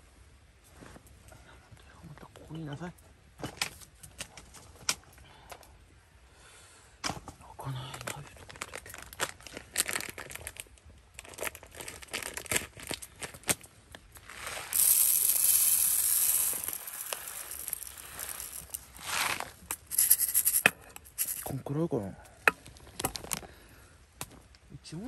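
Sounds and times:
plastic packaging crinkling: 8.4 - 20.4
steady hiss: 14.0 - 22.5.

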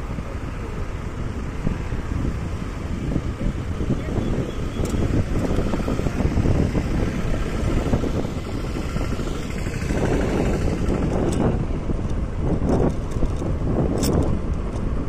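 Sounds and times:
wind buffeting microphone: 0.0 - 15.0
motorcycle engine: 1.0 - 14.6.

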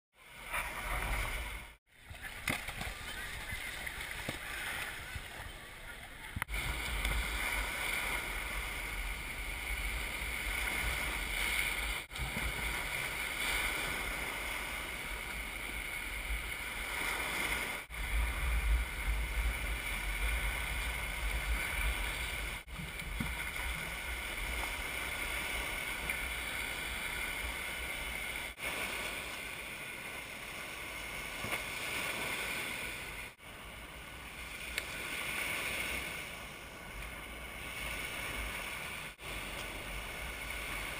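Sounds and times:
small waves washing on shore: 0.2 - 40.9
wind rumbling on microphone: 0.4 - 29.2.

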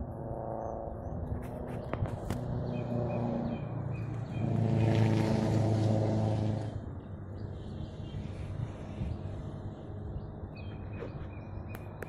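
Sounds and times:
vehicle engine passing: 0.0 - 7.0.

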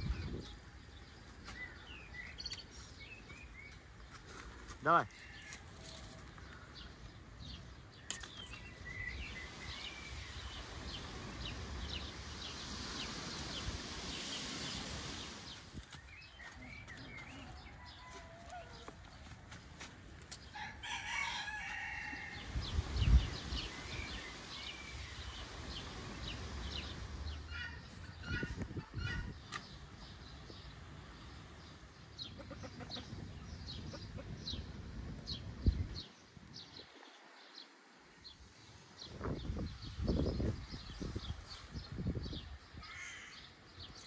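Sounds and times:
small birds chirping: 0.0 - 44.0
rooster crowing: 17.4 - 18.9, 20.5 - 22.5.

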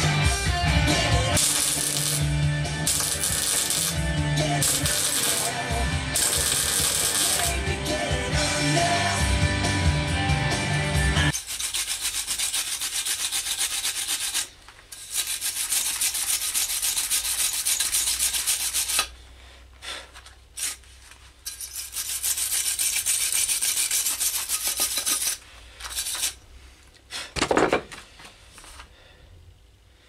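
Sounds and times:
welder crackling: 1.3 - 8.0.

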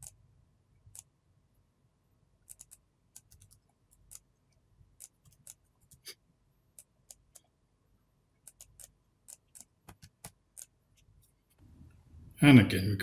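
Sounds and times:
mouse and keyboard clicks: 2.4 - 4.3, 5.0 - 6.0, 6.7 - 7.5, 8.4 - 10.8.

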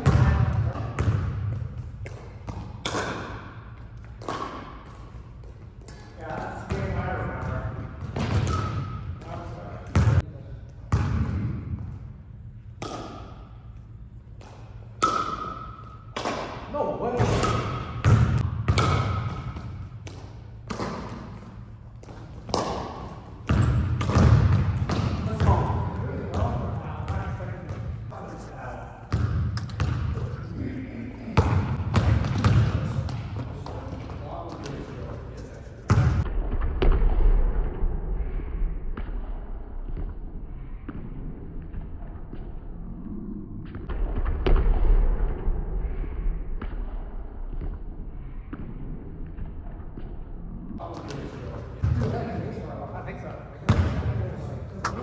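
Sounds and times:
basketball bouncing on hardwood floor: 0.0 - 3.2, 6.7 - 8.9, 9.9 - 10.2, 17.2 - 25.7, 29.1 - 30.2, 31.4 - 34.2, 35.9 - 36.3.

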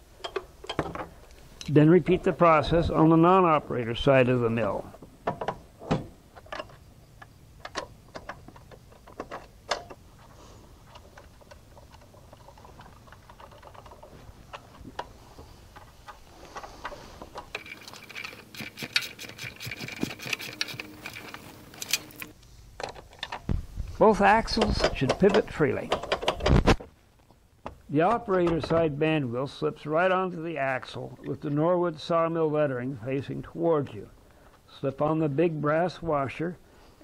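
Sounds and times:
steel tools clinking: 15.7 - 22.3.

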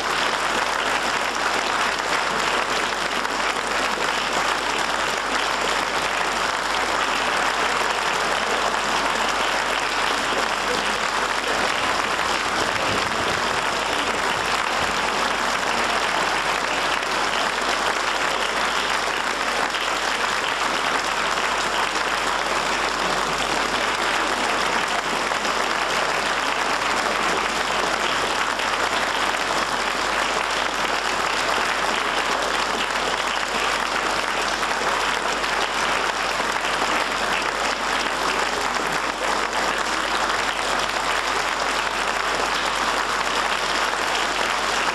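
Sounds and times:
audience applauding: 0.0 - 44.9.

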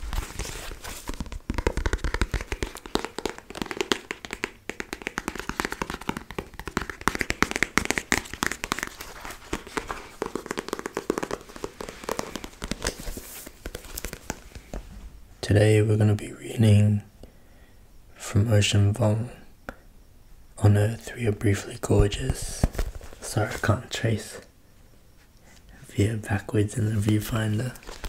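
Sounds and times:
book cover crinkling: 0.0 - 14.8, 22.5 - 23.8, 26.9 - 28.0
fingers tapping a book: 0.0 - 14.9, 26.9 - 28.0.

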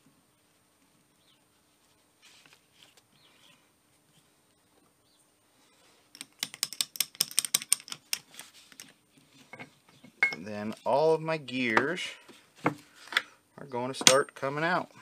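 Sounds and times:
faint handling sounds: 0.0 - 6.4, 7.9 - 13.4
sharp metallic clicks and rattles: 6.2 - 8.9.

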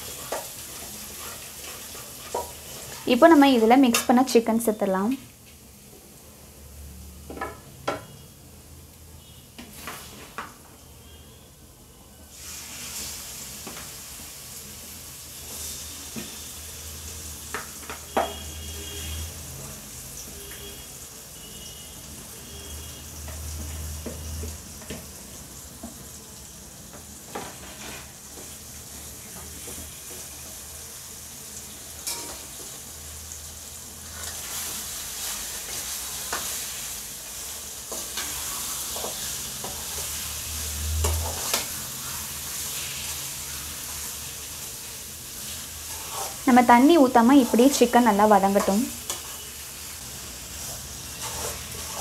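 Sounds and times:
chicken sizzling in oil: 0.0 - 52.0
ladle scraping metal pan: 51.2 - 52.0.

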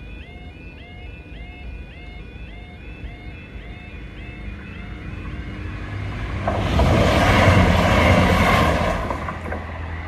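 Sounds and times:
level crossing alarm warbling: 0.0 - 6.4
loud rushing noise: 4.9 - 10.0.

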